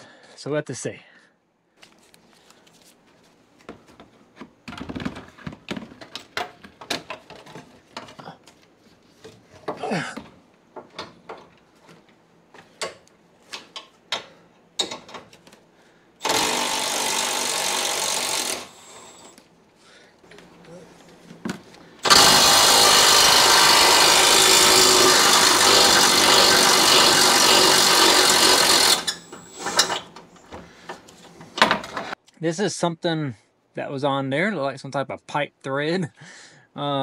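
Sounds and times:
power tool running: 16.2 - 19.4, 22.0 - 30.1.

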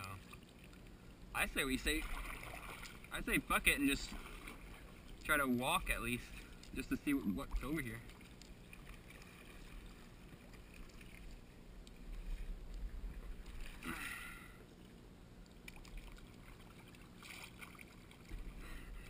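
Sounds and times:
paddle strokes: 0.0 - 19.0
water moving around hull: 0.0 - 19.0
water splash: 1.6 - 6.9, 15.6 - 18.6.

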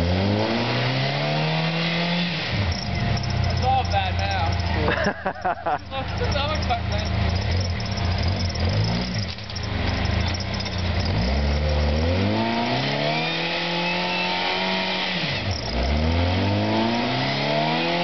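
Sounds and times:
off-road vehicle engine revving: 0.0 - 18.0.

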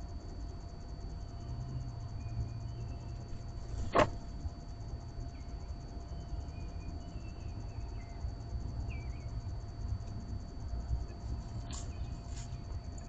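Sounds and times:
faint bird chirps: 1.3 - 3.9, 5.2 - 9.5, 11.1 - 13.0.

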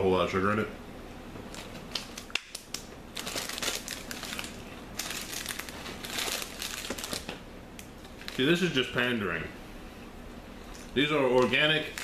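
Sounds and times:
plastic wrapper crinkling: 1.5 - 7.4, 8.0 - 8.6, 11.3 - 12.0.

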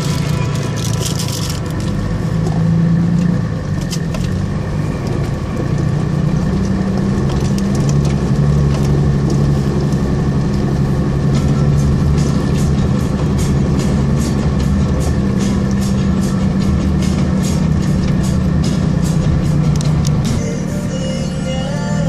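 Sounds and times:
stones and bodywork rattling: 0.0 - 2.6
vehicle engine droning: 0.0 - 22.0.

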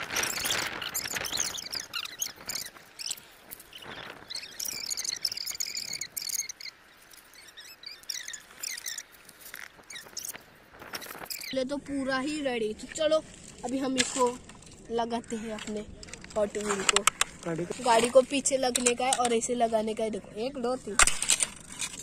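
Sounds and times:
wildlife chirping and trilling: 0.0 - 22.0
plastic toy track pieces clicking: 18.6 - 19.5.

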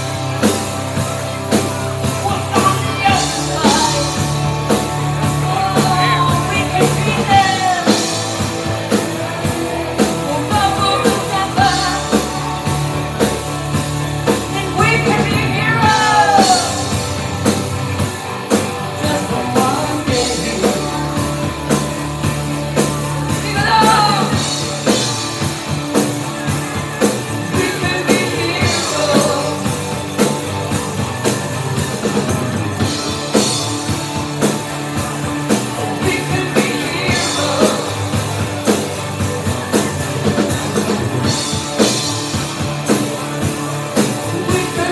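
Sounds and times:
bass guitar: 0.0 - 44.9
drum kit: 0.0 - 44.9
electric guitar: 0.0 - 44.9
woman singing: 2.2 - 4.2, 5.4 - 8.1, 10.2 - 12.3, 14.5 - 17.0, 19.0 - 21.4, 23.3 - 24.6, 27.5 - 29.8.

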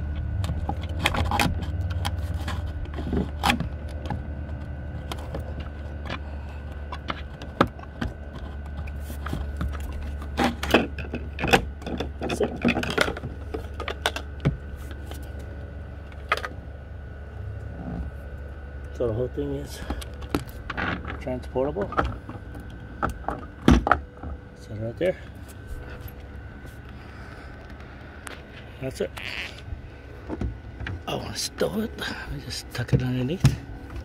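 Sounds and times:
steady low hum: 0.0 - 34.0
plastic clicks knocks and scrapes: 0.2 - 6.2, 6.8 - 15.2.

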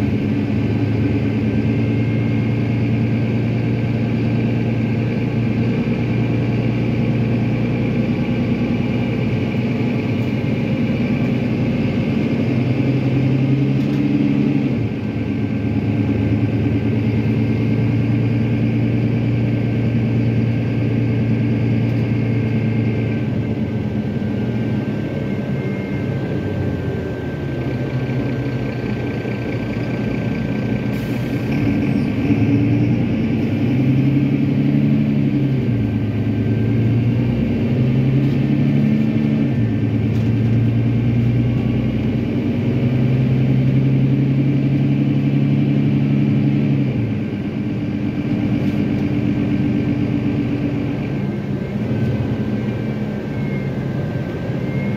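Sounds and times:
diesel bus engine running: 0.0 - 54.9
steady high whine: 14.6 - 32.2.

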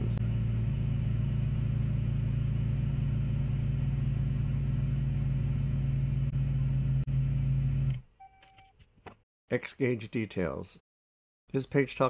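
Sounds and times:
car engine idling: 0.0 - 7.9.

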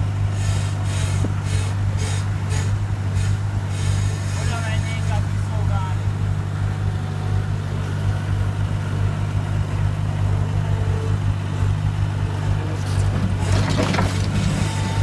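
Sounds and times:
loader engine droning: 0.0 - 15.0
bucket scraping rubble: 12.8 - 15.0.

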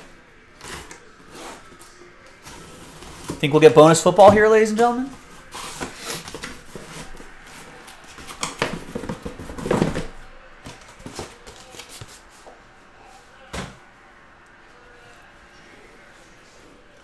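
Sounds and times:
cardboard boxes being handled: 2.4 - 12.2.

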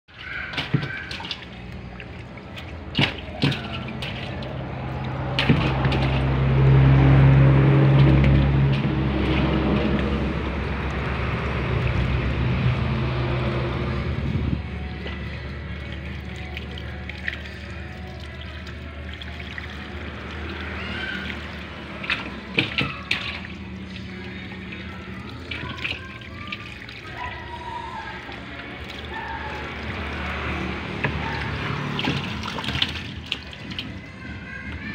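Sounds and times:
fish splashing in tub: 0.1 - 34.9
low motor hum: 0.9 - 34.9
trickle of water: 14.6 - 34.1.

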